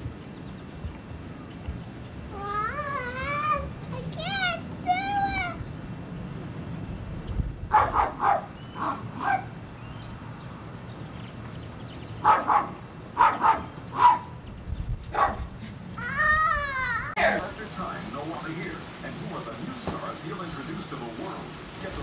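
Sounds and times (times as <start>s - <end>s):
dog barking: 7.7s - 9.6s, 12.2s - 14.3s, 15.1s - 15.5s.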